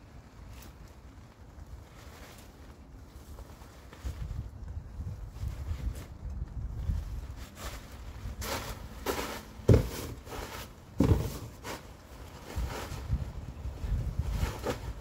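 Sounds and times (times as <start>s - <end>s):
wind rumble on microphone: 0.0s - 8.5s, 12.2s - 15.0s
footsteps on plastic tarp: 0.5s - 15.0s.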